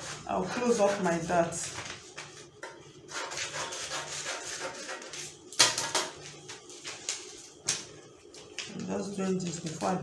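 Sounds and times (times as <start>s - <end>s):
paper rustling and crinkling: 0.9s - 2.5s, 6.2s - 10.0s.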